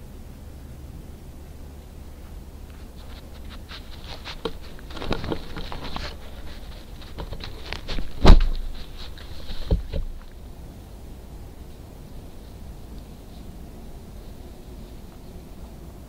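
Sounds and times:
fur rubbing against camera housing: 2.7s - 10.3s
scratches and clicks: 2.7s - 10.4s
loud knocks and thumps: 7.1s - 8.8s.

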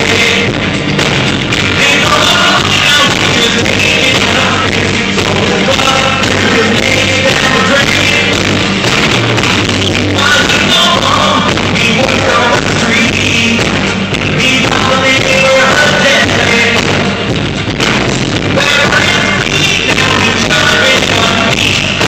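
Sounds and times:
live rock band: 0.0s - 22.0s
male lead singer: 0.0s - 22.0s.

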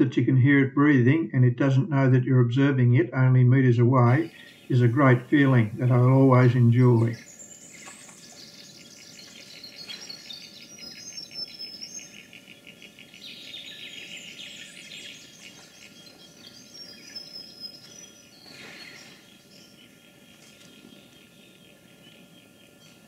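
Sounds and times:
birds calling: 3.2s - 23.0s
insects chirping: 4.0s - 23.0s
high bird whistles: 7.2s - 19.7s.

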